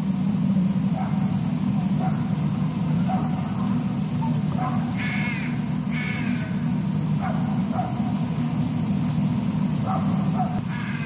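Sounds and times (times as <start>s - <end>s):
harsh bird calls: 4.2s - 6.7s, 10.0s - 11.0s.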